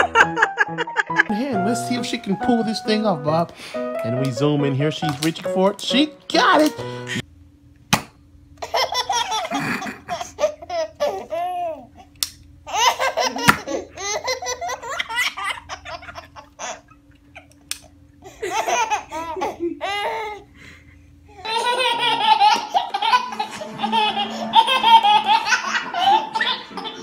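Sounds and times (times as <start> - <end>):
baby laughing: 8.6 - 12.0, 12.7 - 17.6, 18.2 - 20.5, 21.3 - 27.0.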